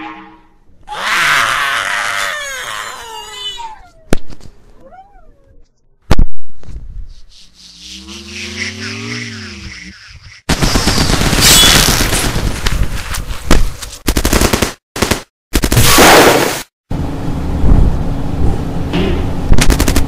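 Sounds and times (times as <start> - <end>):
cartoon characters screaming: 0.9 - 3.8
wailing cry: 0.9 - 4.1
rapid gunfire: 10.5 - 12.6, 14.0 - 16.6, 19.6 - 20.0.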